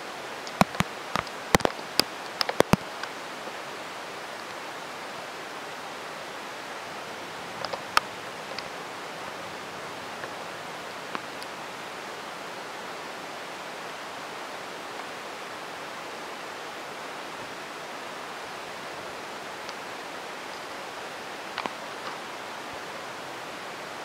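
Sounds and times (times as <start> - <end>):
heavy rain pouring: 0.0 - 24.0
faint sharp ticks: 0.4 - 3.2.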